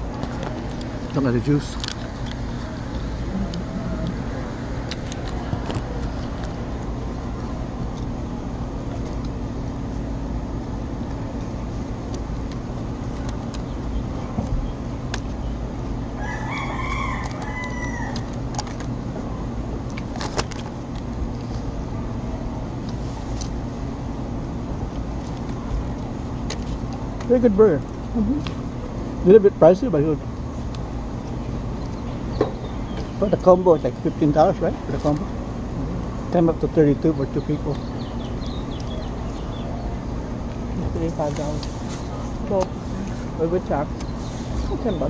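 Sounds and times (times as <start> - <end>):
steady low rumble: 0.0 - 45.0
rooster crowing: 16.2 - 18.4.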